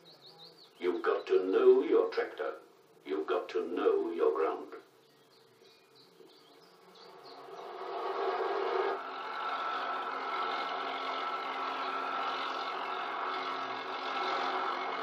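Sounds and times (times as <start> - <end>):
tractor engine droning: 6.8 - 15.0.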